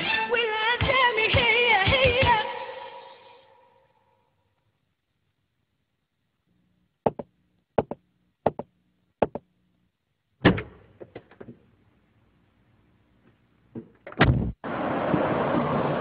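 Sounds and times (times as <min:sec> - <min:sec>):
quick double knocks: 0:07.0 - 0:09.5.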